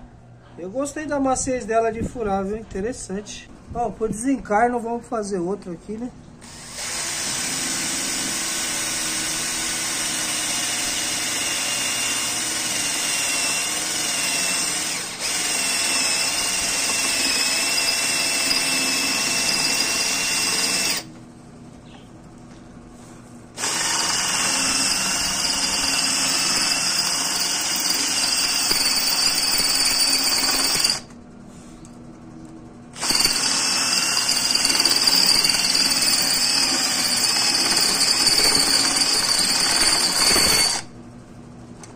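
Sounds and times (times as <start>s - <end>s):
cordless drill drilling steel: 6.4s - 21.1s, 23.6s - 31.1s, 33.0s - 40.9s.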